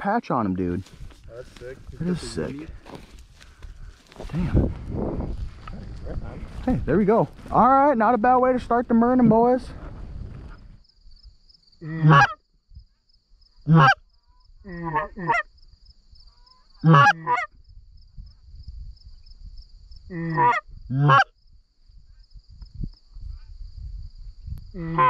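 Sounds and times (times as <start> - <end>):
geese honking: 11.8 - 12.4, 13.7 - 14.0, 14.7 - 15.5, 16.6 - 17.5, 20.1 - 21.3, 24.8 - 25.0.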